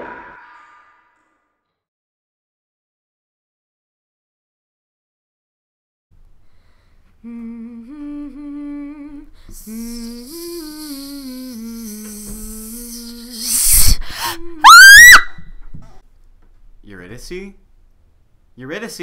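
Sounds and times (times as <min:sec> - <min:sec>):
person humming: 0:07.2 - 0:14.7
snake hissing: 0:09.6 - 0:14.0.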